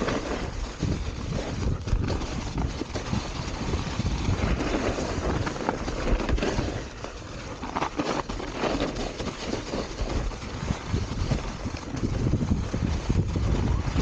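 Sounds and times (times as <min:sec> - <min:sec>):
bike knocking and rattling: 0:00.0 - 0:14.0
mountain bike rumble on snow: 0:00.0 - 0:14.0
wind buffeting microphone: 0:00.0 - 0:14.0.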